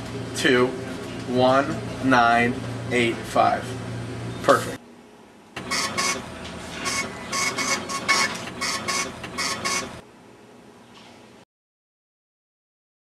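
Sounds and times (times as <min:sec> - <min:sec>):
ticket printer printing: 0:05.6 - 0:10.0.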